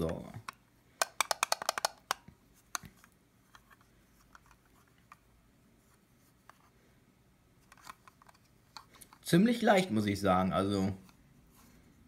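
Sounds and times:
plastic button clicks: 0:00.0 - 0:02.2.

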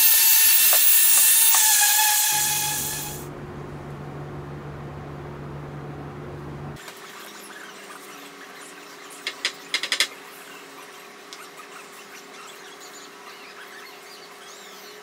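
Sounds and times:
orbital sander with dust extraction: 0:00.0 - 0:03.3
low steady hum: 0:02.3 - 0:06.8.

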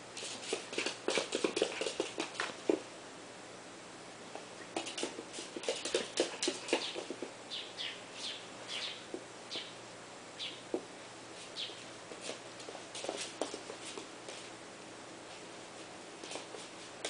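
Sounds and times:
dog nails clicking on wood floor: 0:04.8 - 0:07.3.

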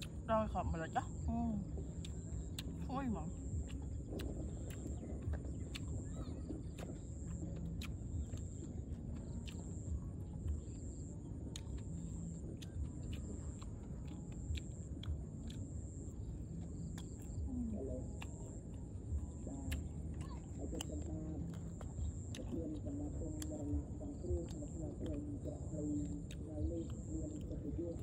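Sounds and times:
low outdoor rumble: 0:00.0 - 0:28.0.

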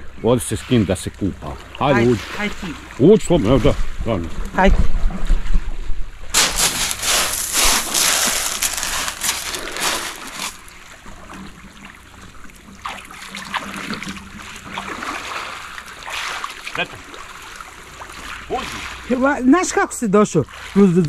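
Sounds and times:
small splashes: 0:06.3 - 0:19.2
small waves lapping on pebbles: 0:06.3 - 0:19.3.

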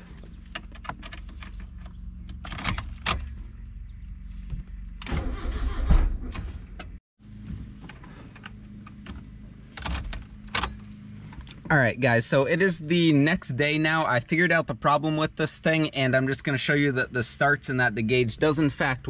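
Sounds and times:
key clicking in ignition: 0:00.5 - 0:03.4
starter cranking engine: 0:05.0 - 0:06.4.

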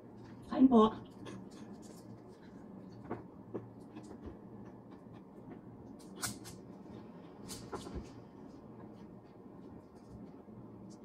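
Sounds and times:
chewing: 0:00.2 - 0:05.6.

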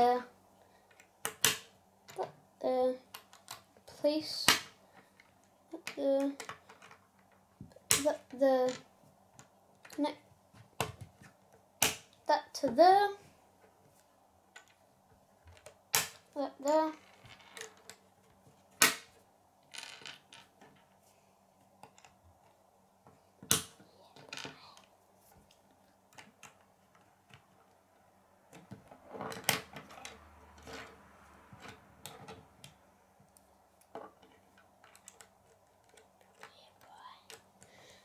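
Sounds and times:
plastic pieces clicking together: 0:34.2 - 0:36.6.

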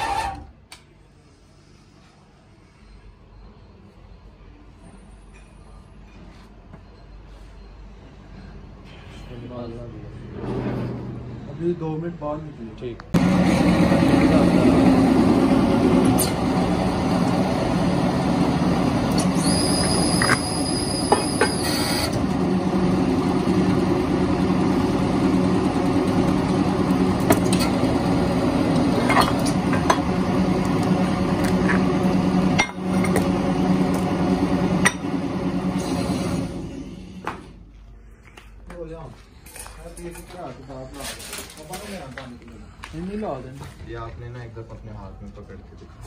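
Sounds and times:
machine drone with low hum: 0:13.1 - 0:38.2.

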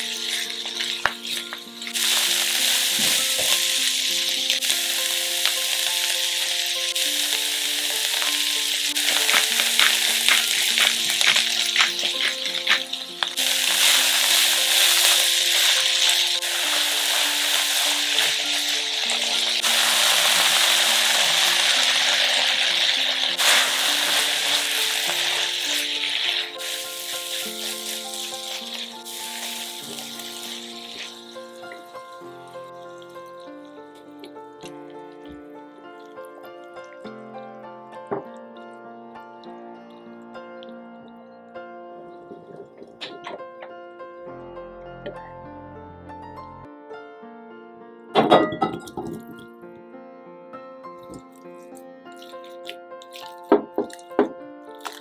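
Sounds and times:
vegetables sizzling in a pan: 0:00.0 - 0:32.0
soft background music: 0:00.0 - 0:55.0.

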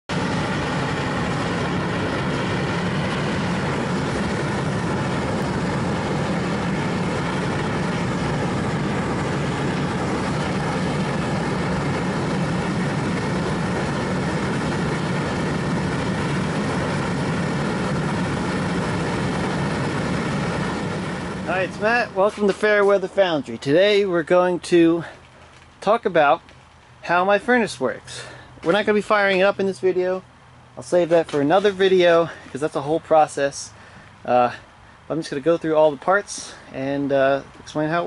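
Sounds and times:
deep mechanical drone: 0:00.1 - 0:38.0.

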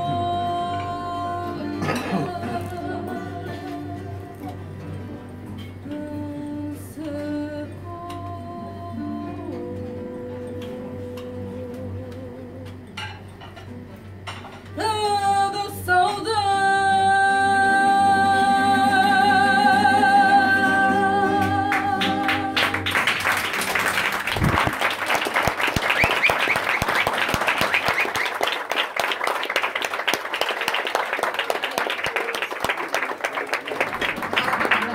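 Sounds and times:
woman singing with vibrato: 0:00.0 - 0:04.7, 0:05.8 - 0:12.9, 0:14.8 - 0:23.0
guitar accompaniment: 0:00.0 - 0:28.2
audience applauding: 0:21.4 - 0:34.9.

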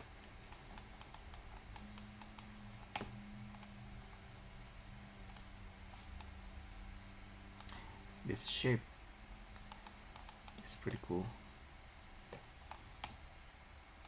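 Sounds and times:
faint steady hum: 0:00.0 - 0:14.0
keyboard and mouse clicks: 0:00.4 - 0:03.7, 0:05.3 - 0:05.5, 0:09.6 - 0:10.7.

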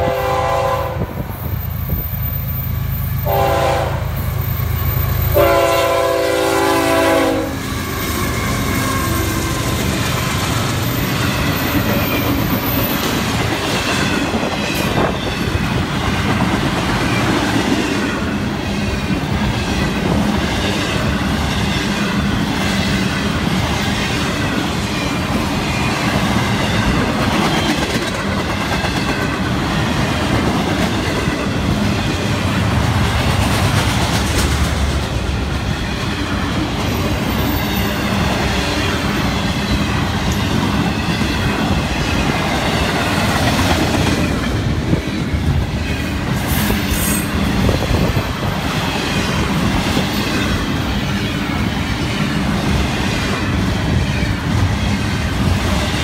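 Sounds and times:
train horn blasts: 0:00.0 - 0:01.2, 0:03.2 - 0:04.2, 0:05.3 - 0:09.4
train wheels clacking over rail joints: 0:25.4 - 0:32.1, 0:32.7 - 0:50.9.

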